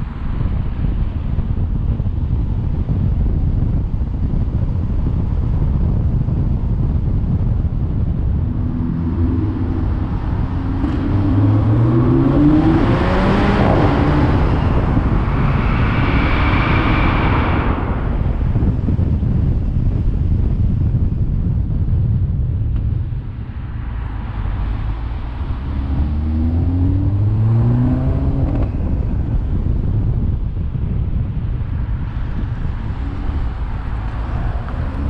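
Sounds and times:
car road and wind rumble: 0.0s - 35.0s
car engine accelerating: 5.0s - 20.1s, 22.7s - 30.3s, 32.1s - 35.0s.

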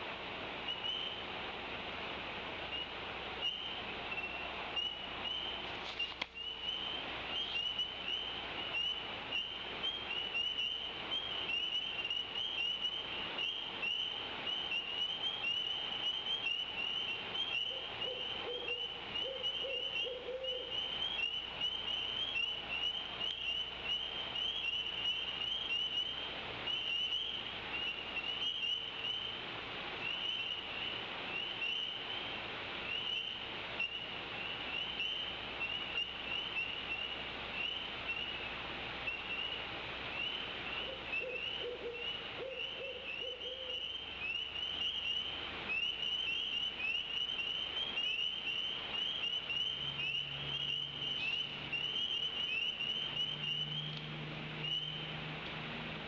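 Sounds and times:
owl hooting: 2.7s - 29.2s, 40.2s - 54.0s
chorus of high peeping calls: 40.2s - 54.0s, 54.6s - 55.1s.

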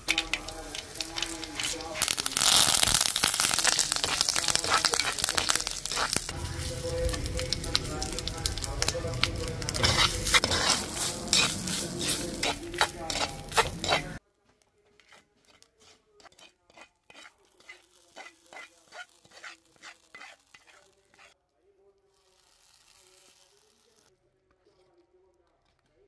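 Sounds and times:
coconut sizzling in oil: 0.0s - 14.2s, 15.0s - 21.4s, 22.0s - 24.1s
wooden spatula scraping a pot: 0.0s - 14.2s, 14.9s - 21.4s.

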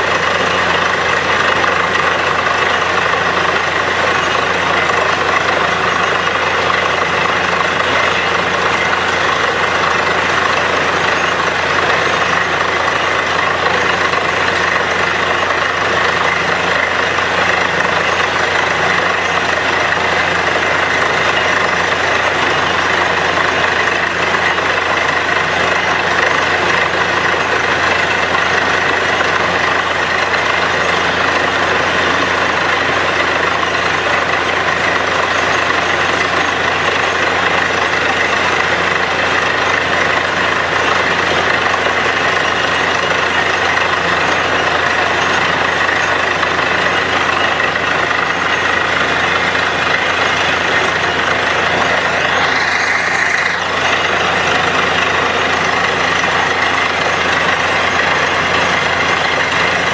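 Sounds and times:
air compressor blowing slurry: 0.0s - 59.9s
drilling rig engine running: 0.0s - 59.9s.

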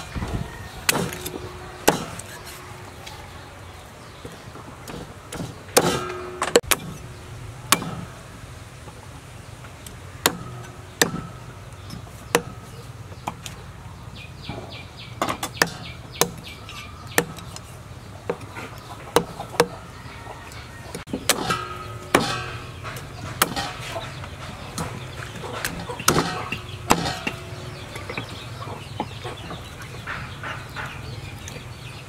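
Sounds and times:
cleaver chopping on wooden block: 0.9s - 2.4s, 4.9s - 7.0s, 7.7s - 8.1s, 10.2s - 12.6s, 15.2s - 17.6s, 19.1s - 19.8s, 25.6s - 27.4s.

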